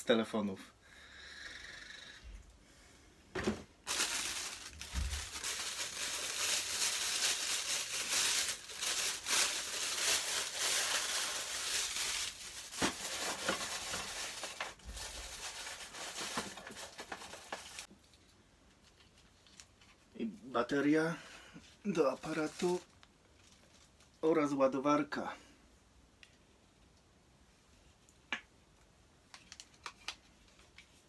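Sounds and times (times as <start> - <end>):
plastic packaging crinkling: 3.8 - 17.9, 22.0 - 24.2.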